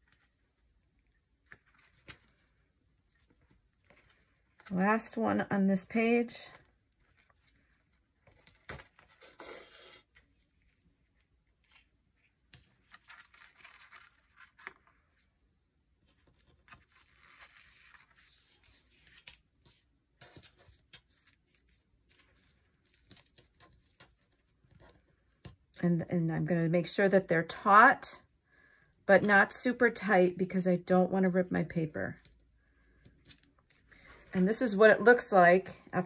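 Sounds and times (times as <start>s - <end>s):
paper pages rustling: 1.4s - 4.8s, 10.1s - 15.3s, 16.0s - 25.5s.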